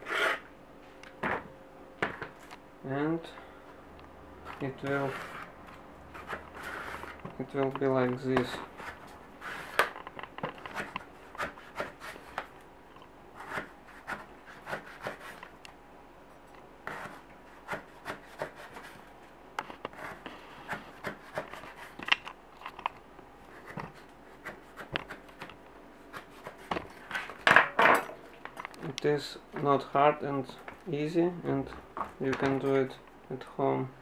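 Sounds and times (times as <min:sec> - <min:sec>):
knife slicing eggplant: 0:13.4 - 0:15.4.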